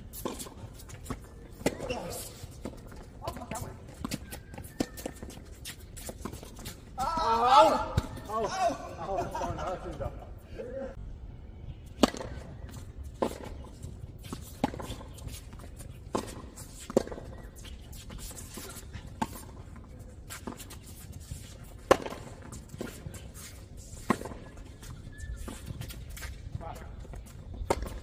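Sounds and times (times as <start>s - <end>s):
tennis ball struck by racquets: 12.0s - 12.5s, 21.8s - 23.0s.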